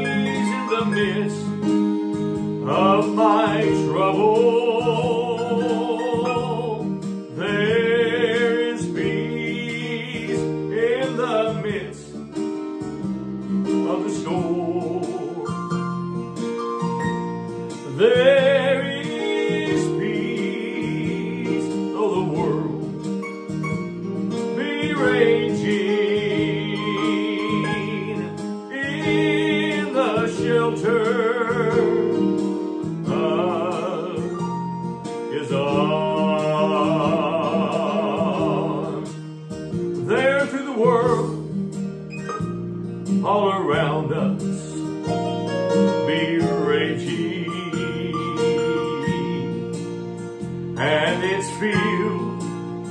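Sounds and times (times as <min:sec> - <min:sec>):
acoustic guitar: 0:00.0 - 0:52.9
person singing with vibrato: 0:02.6 - 0:12.2, 0:13.7 - 0:15.8, 0:17.8 - 0:23.1, 0:24.6 - 0:32.4, 0:33.0 - 0:34.6, 0:35.2 - 0:39.2, 0:46.0 - 0:49.8, 0:50.8 - 0:52.6.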